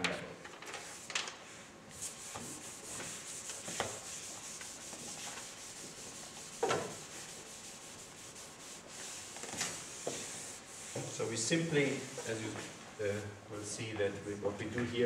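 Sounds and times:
chalk scraping on chalkboard: 0:01.9 - 0:13.2.

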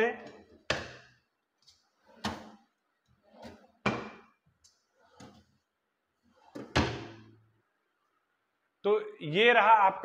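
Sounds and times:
cabinet doors thudding shut: 0:03.8 - 0:04.3, 0:06.6 - 0:07.3.

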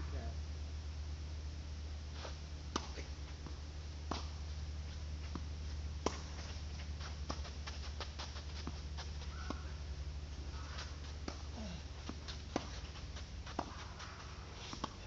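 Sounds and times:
steady low hum: 0:00.0 - 0:15.0
racket striking tennis ball: 0:02.7 - 0:04.4, 0:05.3 - 0:06.6, 0:10.5 - 0:15.0
scuffing footsteps: 0:04.9 - 0:09.8
ball bouncing on hard court: 0:12.1 - 0:15.0.

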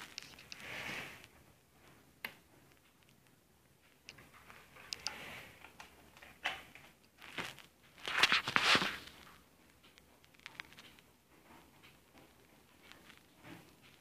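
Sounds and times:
rustling: 0:00.0 - 0:14.0.

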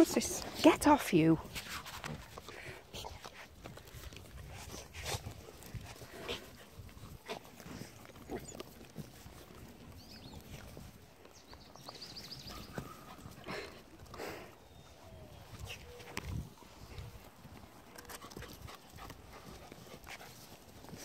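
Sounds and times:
puppies rustling on dry grass: 0:00.0 - 0:21.0
puppy sounds: 0:02.0 - 0:09.6.

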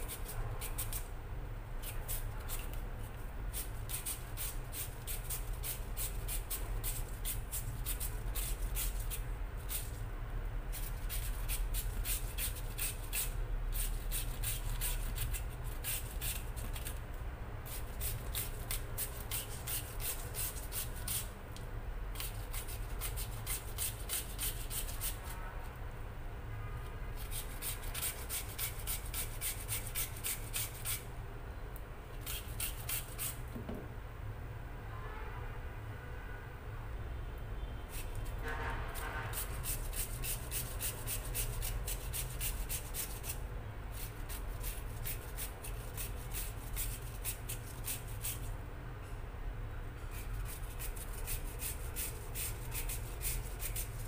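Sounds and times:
taro scraping on hand grater: 0:10.8 - 0:17.0, 0:17.7 - 0:21.3, 0:22.2 - 0:25.4, 0:27.2 - 0:31.1, 0:32.2 - 0:33.4, 0:37.9 - 0:48.5, 0:50.0 - 0:54.0.

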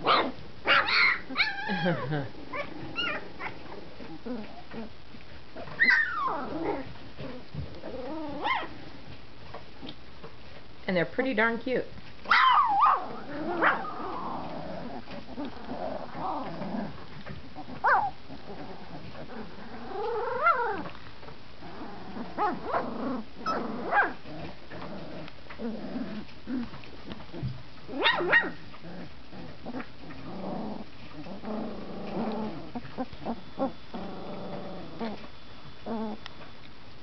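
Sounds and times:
puppies yipping and squealing: 0:00.0 - 0:04.8, 0:05.6 - 0:07.6, 0:12.2 - 0:16.6, 0:17.2 - 0:20.9, 0:27.2 - 0:28.8, 0:32.7 - 0:34.0.

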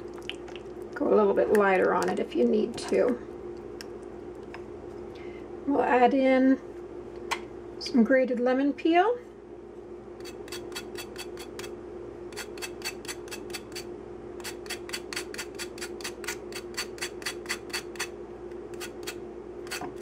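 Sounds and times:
steady low hum: 0:00.0 - 0:20.0
peel rasping on metal grater: 0:10.2 - 0:11.7, 0:12.4 - 0:18.1, 0:18.7 - 0:20.0.

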